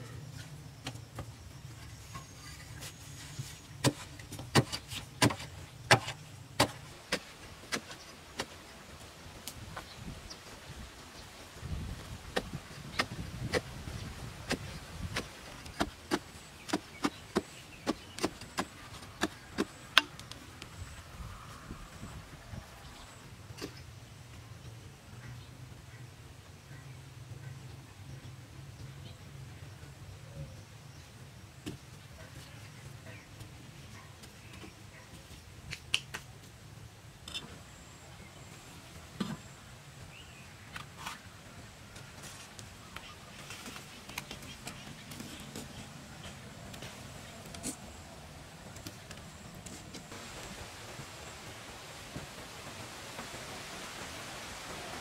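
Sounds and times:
digging tool striking hard earth: 0:03.8 - 0:08.6, 0:14.4 - 0:20.2.

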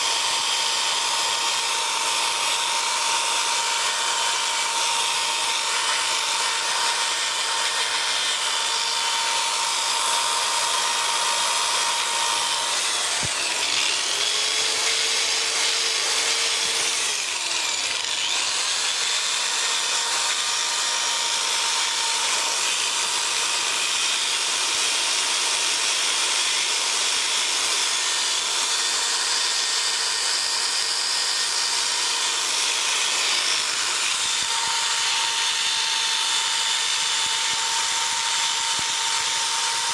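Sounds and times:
electric drill whine: 0:00.0 - 0:39.9.

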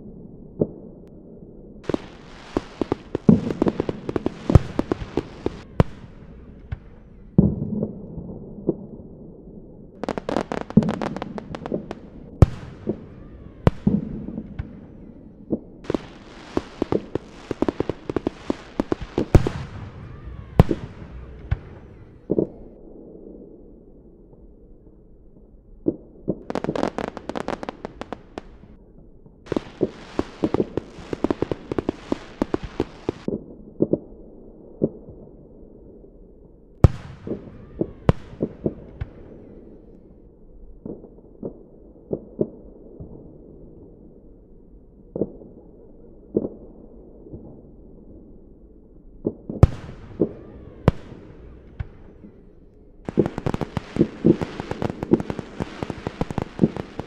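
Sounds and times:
fireworks crackling: 0:01.8 - 0:07.9, 0:10.0 - 0:22.8, 0:26.4 - 0:28.8, 0:29.5 - 0:33.3, 0:36.8 - 0:40.0, 0:49.5 - 0:57.0
fireworks bangs: 0:01.8 - 0:08.9, 0:10.0 - 0:22.8, 0:26.2 - 0:28.8, 0:29.5 - 0:33.3, 0:36.8 - 0:40.2, 0:49.2 - 0:57.0
loud echoing bangs: 0:10.0 - 0:22.7, 0:49.6 - 0:57.0.

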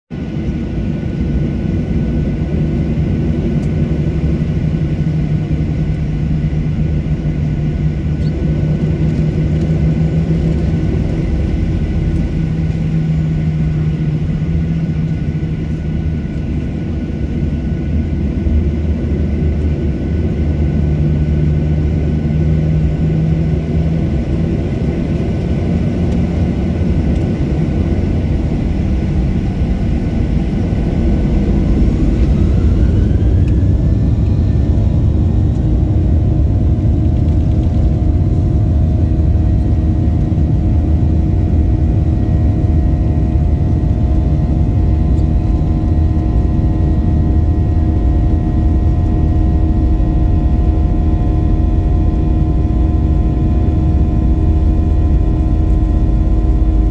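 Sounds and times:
jet engines rumbling and whining: 0:00.1 - 0:56.9.

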